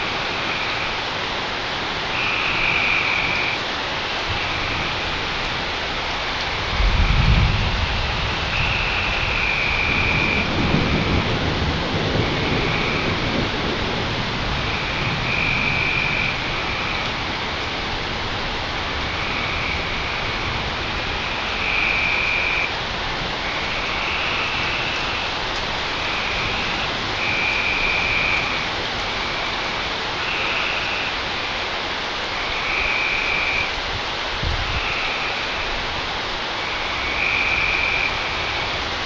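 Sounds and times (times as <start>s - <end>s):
frogs trilling: 0.0s - 1.1s, 2.1s - 5.3s, 6.5s - 11.3s, 12.2s - 13.4s, 14.6s - 17.8s, 19.0s - 22.8s, 23.4s - 31.6s, 32.3s - 33.8s, 34.7s - 35.8s, 36.6s - 38.8s
steady rain falling: 0.0s - 39.0s.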